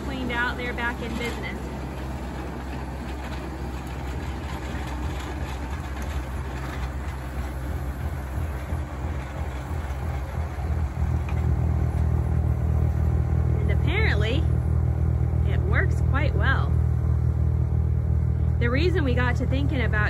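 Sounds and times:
snowblower throwing snow: 0.0s - 14.3s
tractor diesel engine running: 0.0s - 20.0s.

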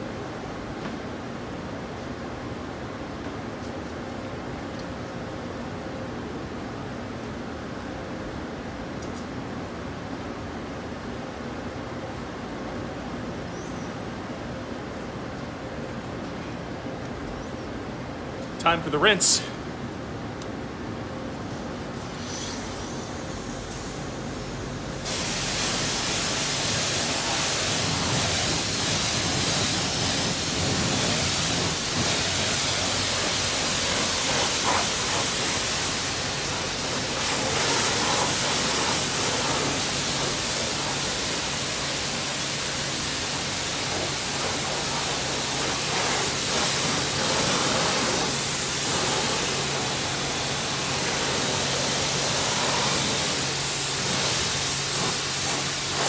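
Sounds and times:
pressure washer spray hissing: 22.0s - 56.0s.

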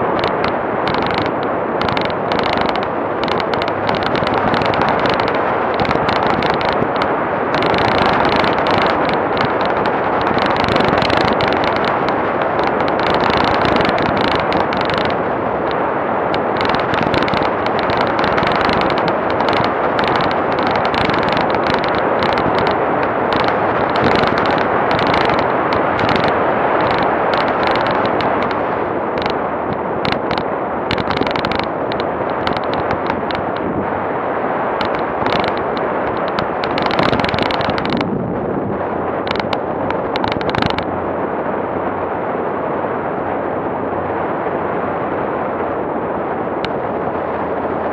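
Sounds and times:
rapid rattling clicks: 0.0s - 33.8s, 34.7s - 38.2s, 39.2s - 40.9s
vehicle driving on dirt road: 0.0s - 47.9s.

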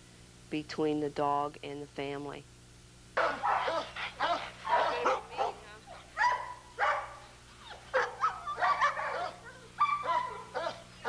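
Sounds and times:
dog barking and yipping: 3.2s - 11.0s.

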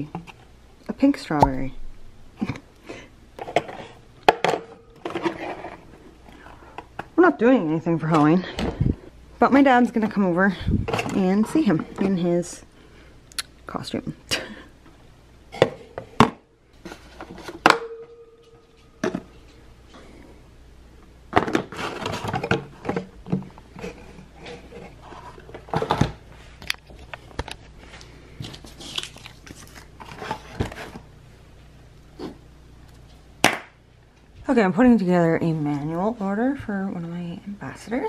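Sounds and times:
cardboard and paper rustling: 16.8s - 17.6s, 21.5s - 23.1s, 23.7s - 31.0s.

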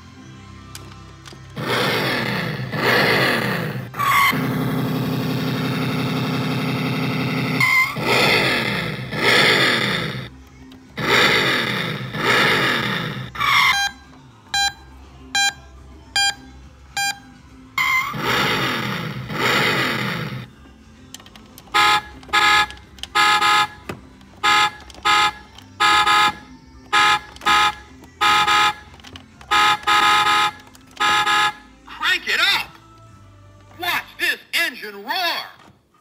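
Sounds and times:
electronic engine revving: 1.6s - 10.3s, 11.0s - 13.9s, 17.8s - 20.5s
loud electronic horn blasts: 6.0s - 10.3s, 21.7s - 31.7s
short electronic beeps: 14.6s - 15.6s, 16.2s - 18.1s.

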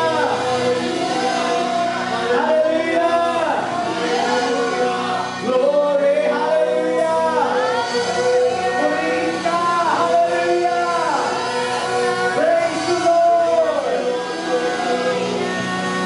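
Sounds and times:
man and backing singers singing: 0.0s - 16.0s
worship band playing: 0.0s - 16.0s.

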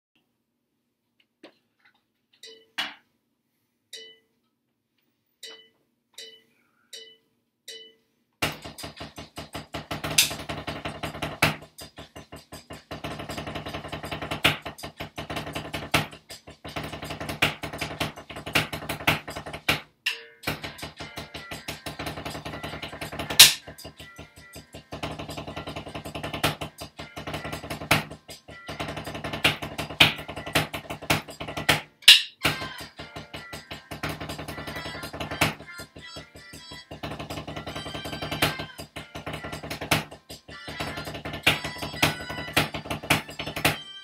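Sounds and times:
electronic backing music: 20.4s - 44.0s.

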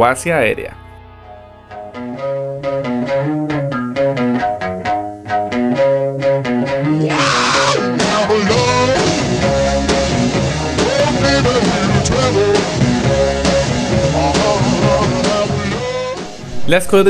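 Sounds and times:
rock music: 0.2s - 17.0s
electric guitar bending melody: 0.8s - 16.7s
drums: 7.0s - 17.0s.

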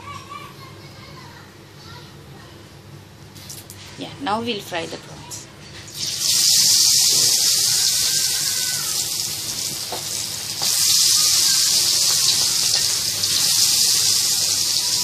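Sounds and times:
oil sizzling deep-frying: 5.8s - 15.0s.

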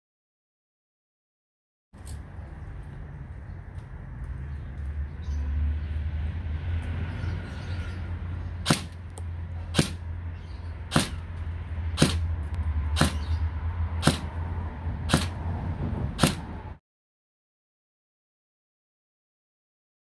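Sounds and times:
steady low rumble: 8.0s - 16.8s
toy blaster firing single shots: 8.6s - 9.0s, 9.7s - 10.0s, 10.9s - 11.3s, 12.0s - 12.3s, 13.0s - 13.3s, 14.0s - 14.3s, 15.1s - 15.4s, 16.2s - 16.5s.

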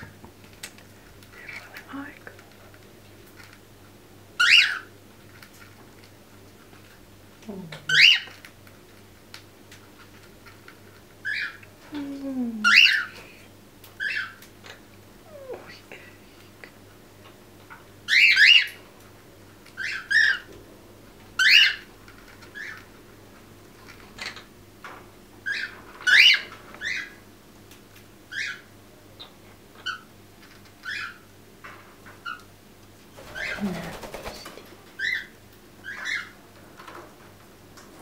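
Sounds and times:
parrots chirping: 4.4s - 4.9s, 7.9s - 8.3s, 11.2s - 11.6s, 14.0s - 14.4s, 18.1s - 18.8s, 19.8s - 20.5s, 21.4s - 21.9s, 25.4s - 27.2s, 28.3s - 30.1s, 30.8s - 31.2s, 35.0s - 36.4s.

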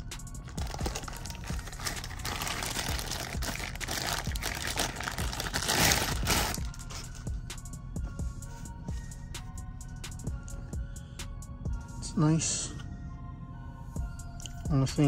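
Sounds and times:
packaging crinkling: 0.4s - 7.2s.

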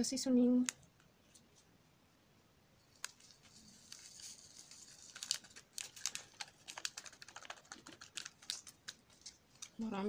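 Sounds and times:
foil sachet crinkling: 2.9s - 10.0s.

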